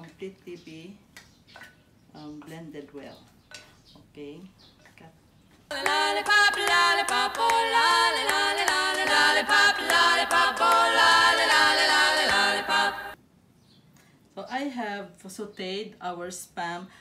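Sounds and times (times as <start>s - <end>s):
voices singing in harmony: 5.7s - 13.2s.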